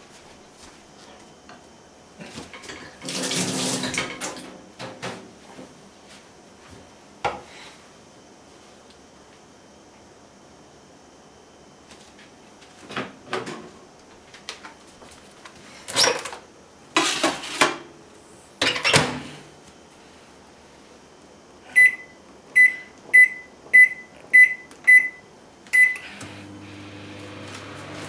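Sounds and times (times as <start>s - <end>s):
microwave oven humming: 16.2s - 28.0s
microwave keypad beeps: 21.7s - 26.2s.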